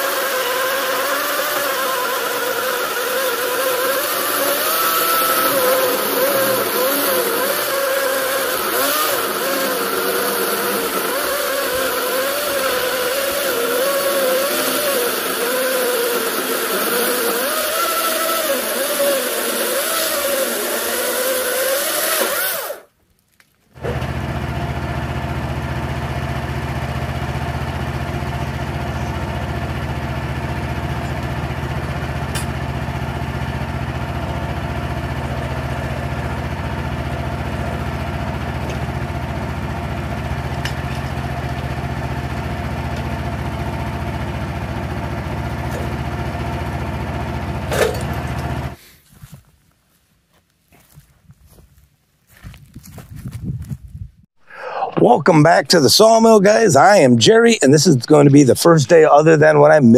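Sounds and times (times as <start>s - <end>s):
chainsaw cutting into log: 0.0s - 22.9s, 28.5s - 48.9s
low engine idle: 23.8s - 48.8s.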